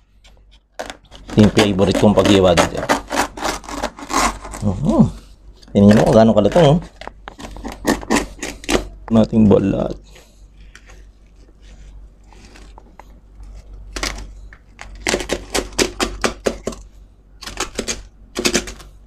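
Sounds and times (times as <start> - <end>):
knife scraping: 1.3 - 4.9, 7.4 - 9.0.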